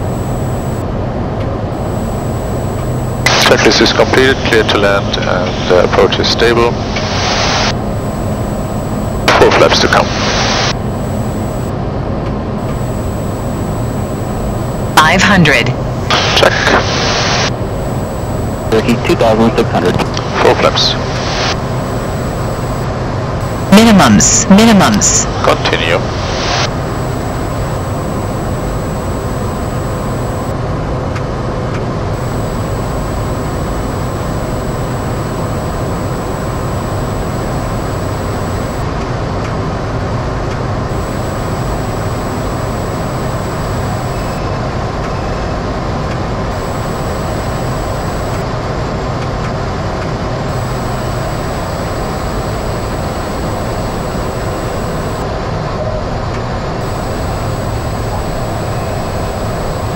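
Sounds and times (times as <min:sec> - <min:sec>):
turboprop engine drone: 0:00.0 - 0:00.8, 0:01.7 - 0:11.7, 0:12.6 - 0:30.6, 0:32.2 - 0:38.9, 0:40.9 - 0:44.5, 0:46.6 - 0:48.4, 0:50.5 - 0:55.2, 0:56.8 - 0:59.9.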